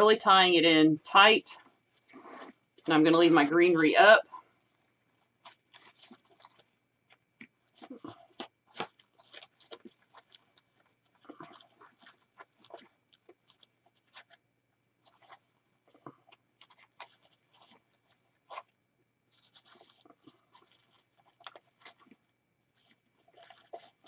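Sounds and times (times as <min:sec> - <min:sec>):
ribbon crinkling and rustling: 0:04.6 - 0:14.4, 0:19.3 - 0:24.0.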